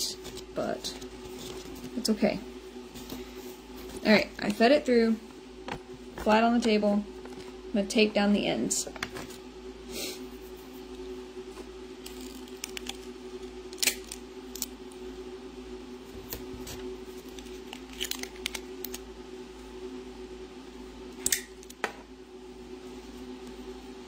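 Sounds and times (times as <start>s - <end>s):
steady low hum: 0.0s - 24.0s
tape ripping from dispenser: 13.7s - 14.7s, 17.4s - 19.0s.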